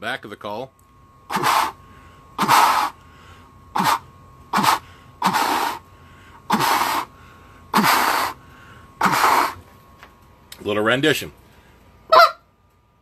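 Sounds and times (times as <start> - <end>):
goose call spit notes: 1.3 - 1.8, 2.4 - 3.0, 3.8 - 5.8, 6.5 - 7.1, 7.8 - 8.4, 9.0 - 9.6.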